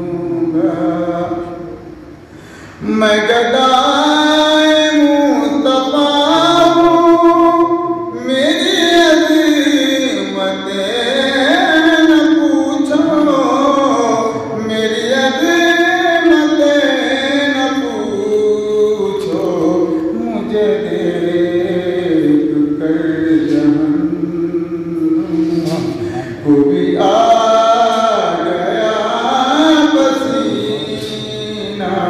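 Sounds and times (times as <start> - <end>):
man singing into a microphone: 0.0 - 1.8, 2.8 - 32.0.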